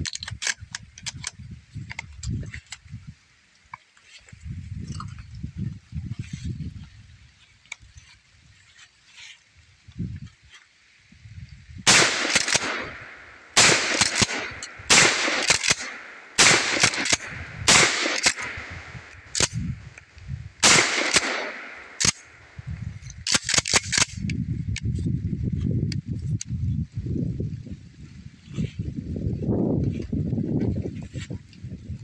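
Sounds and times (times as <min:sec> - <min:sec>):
shotgun pump clack: 0:00.0 - 0:02.3, 0:11.9 - 0:22.3, 0:23.0 - 0:24.8
shotgun shots echoing: 0:11.9 - 0:19.6, 0:20.6 - 0:22.4.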